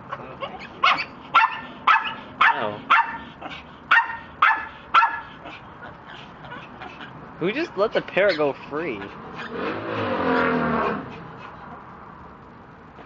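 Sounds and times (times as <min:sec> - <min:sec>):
dog barking: 0:00.4 - 0:03.3, 0:03.9 - 0:05.6.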